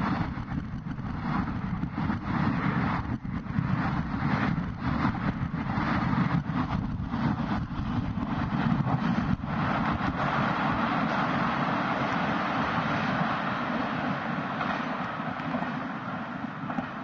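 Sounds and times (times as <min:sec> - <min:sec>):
train wheels rumbling on rails: 0:00.0 - 0:17.0.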